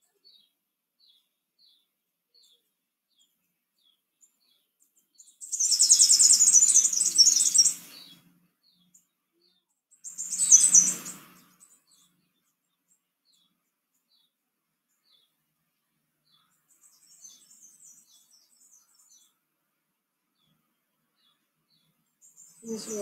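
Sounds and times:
bird chirping: 0.0 - 23.0
bird twittering rapidly: 5.4 - 8.3, 10.0 - 12.2, 22.3 - 23.0.

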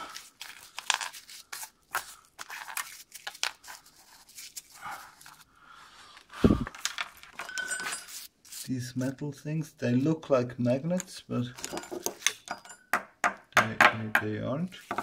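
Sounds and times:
gloved hand rustling: 0.0 - 5.5, 6.2 - 9.0.

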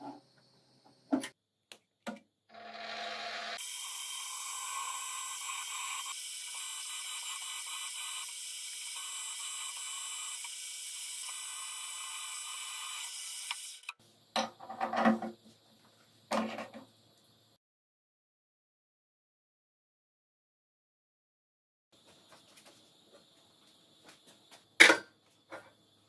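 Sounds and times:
drilling machine running: 2.5 - 13.9
drill cutting into steel: 2.5 - 14.0.

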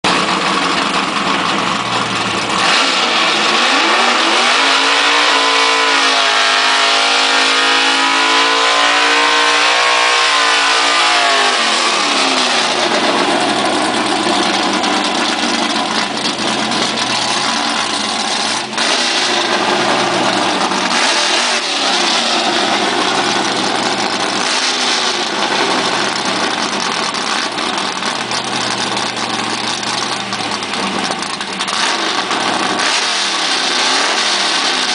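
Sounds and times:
race car engine revving: 0.1 - 34.9.

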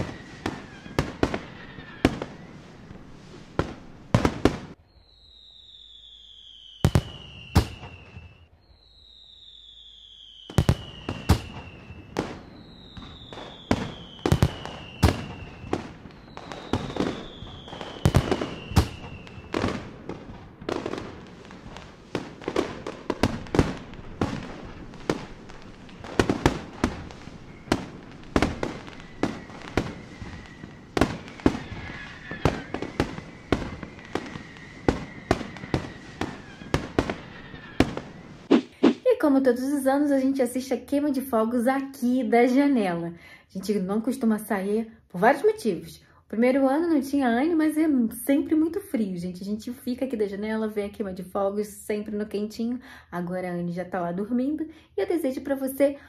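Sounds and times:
steady high whistle: 0.0 - 1.0, 4.9 - 19.7, 27.4 - 27.9, 28.8 - 36.8
fireworks whistles falling in pitch: 0.0 - 39.0
fireworks bangs: 0.0 - 40.0.

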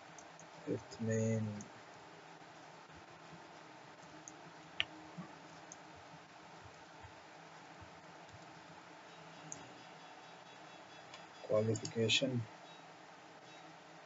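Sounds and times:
steady hiss: 0.0 - 14.0
keyboard typing clicks: 11.1 - 12.0.

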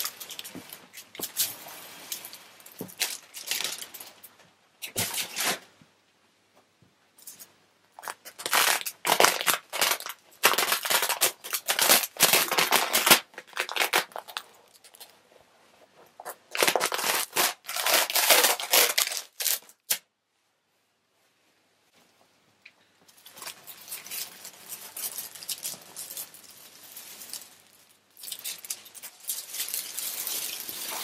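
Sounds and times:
paper and plastic film peeling: 8.0 - 15.1, 16.2 - 20.0, 23.2 - 27.6, 28.2 - 31.0.

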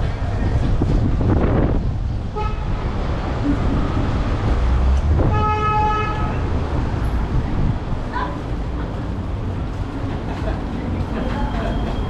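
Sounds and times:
street noise rumble: 0.0 - 12.0
vehicle horn honk: 2.3 - 2.7, 5.2 - 6.5.

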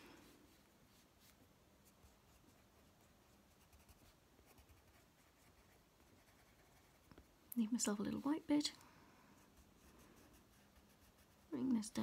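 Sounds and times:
pencil scratching on paper: 1.8 - 7.1, 9.4 - 11.6.

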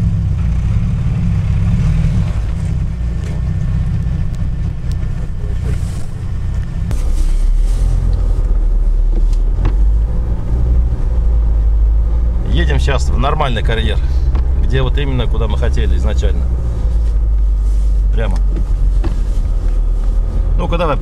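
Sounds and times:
engine running hard in mud: 0.0 - 21.0
low rumble of car driving: 0.0 - 21.0.

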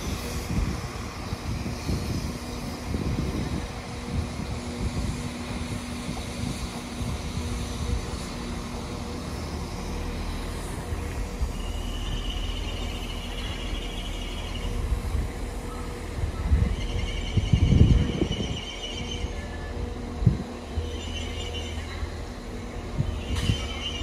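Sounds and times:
train engine drone: 0.0 - 24.0
wheels rumbling on track: 0.0 - 24.0
high wheel squeal: 11.0 - 14.9, 15.6 - 20.0, 23.0 - 24.0.

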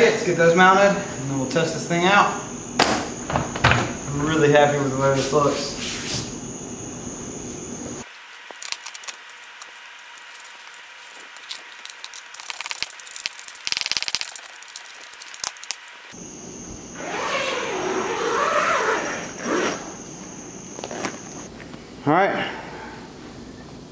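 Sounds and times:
vinyl cover and zipper rustling: 17.0 - 20.0, 20.7 - 21.5.

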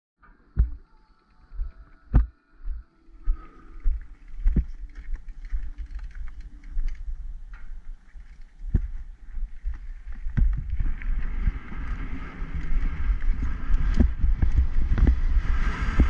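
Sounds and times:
bike rattling: 3.7 - 16.0
bike tyres rumbling on dirt: 8.0 - 16.0.

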